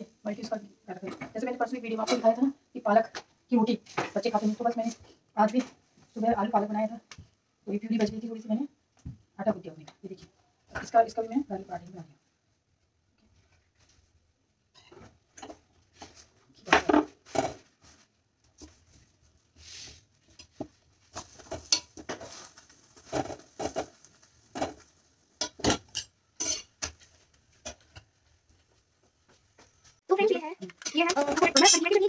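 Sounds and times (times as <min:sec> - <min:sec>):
spatula on griddle: 0:19.6 - 0:28.2, 0:30.8 - 0:32.0
steel bowls and pans clinking: 0:21.2 - 0:22.4, 0:23.0 - 0:27.0, 0:30.7 - 0:32.0.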